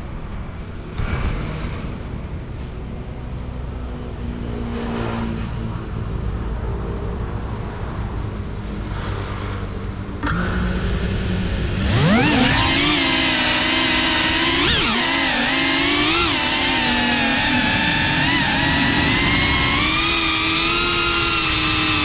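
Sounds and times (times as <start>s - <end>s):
drone motors whining at idle: 10.0s - 22.0s.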